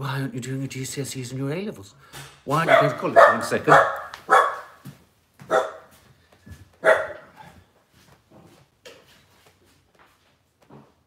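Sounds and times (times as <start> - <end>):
dog barking: 2.6 - 4.8, 5.5 - 6.0, 6.8 - 7.6.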